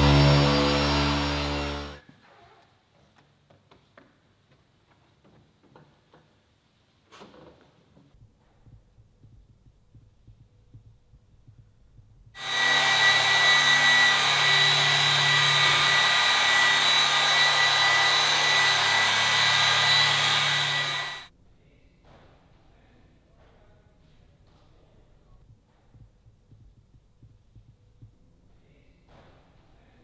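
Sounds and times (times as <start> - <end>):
polisher motor whining: 0.0 - 2.0, 12.4 - 21.3.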